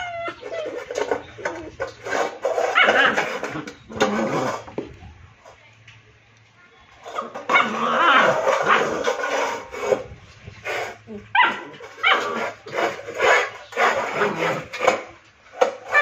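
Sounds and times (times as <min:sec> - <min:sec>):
puppy growling and barking: 0:00.0 - 0:04.7, 0:07.1 - 0:09.6, 0:11.1 - 0:15.0.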